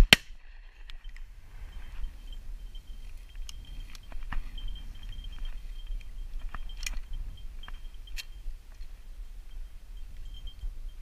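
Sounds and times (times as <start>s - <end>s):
walking through dry weeds: 0.4s - 10.5s
wind rumbling on microphone: 0.4s - 11.0s.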